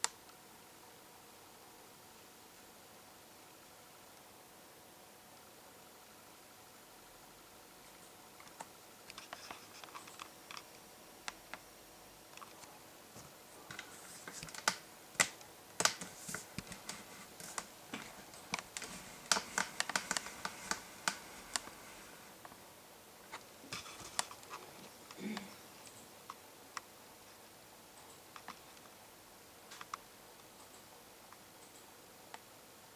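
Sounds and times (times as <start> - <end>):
light clicking and tapping: 12.3 - 21.8.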